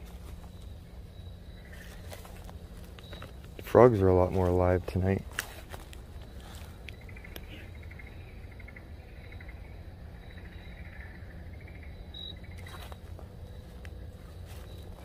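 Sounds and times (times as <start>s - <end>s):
animals calling in pulsed trills: 0.0s - 15.0s
footsteps crunching on leaf litter: 1.7s - 6.9s, 12.6s - 15.0s.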